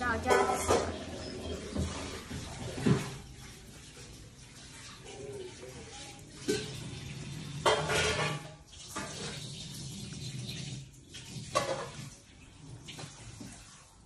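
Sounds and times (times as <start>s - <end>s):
spoon scraping ceramic plate: 0.2s - 2.2s.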